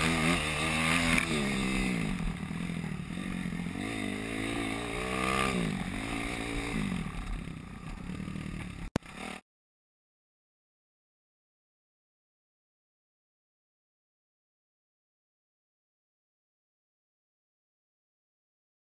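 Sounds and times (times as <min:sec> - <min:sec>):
dirt bike engine revving: 0:00.0 - 0:09.4.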